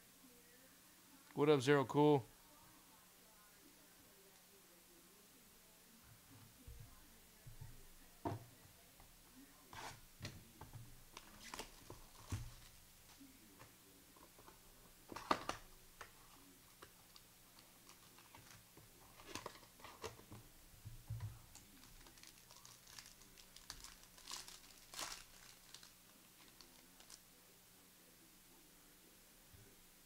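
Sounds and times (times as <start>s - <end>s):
wrappers crinkling: 11.1s - 13.2s, 15.1s - 20.2s, 21.4s - 27.2s.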